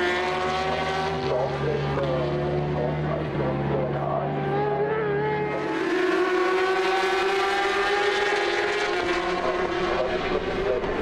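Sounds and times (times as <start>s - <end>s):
racing motorcycle engines revving: 0.0s - 11.0s.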